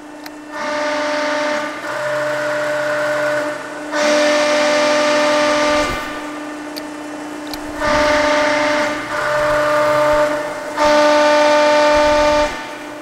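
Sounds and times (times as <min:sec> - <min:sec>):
hydraulic pump whining: 0:00.0 - 0:13.0.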